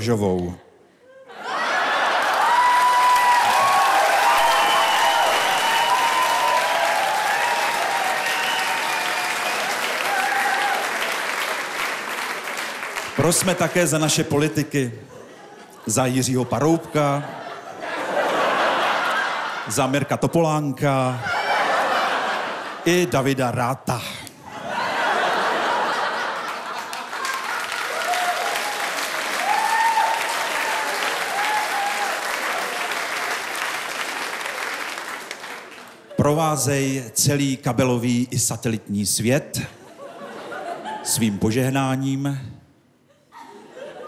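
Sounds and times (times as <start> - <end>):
audience laughing: 1.1 - 2.8, 15.0 - 23.3, 24.4 - 28.1, 39.6 - 41.4, 43.1 - 44.0
audience applauding: 1.8 - 14.4, 25.1 - 36.2.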